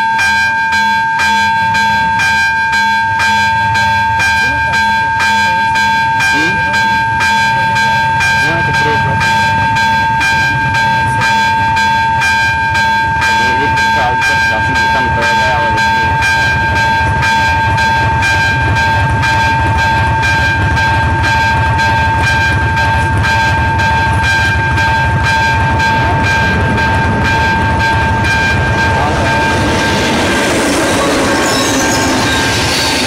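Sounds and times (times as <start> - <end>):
approaching train: 0.0 - 33.0
level-crossing warning bell ringing: 0.0 - 33.0
low rumble: 14.5 - 33.0.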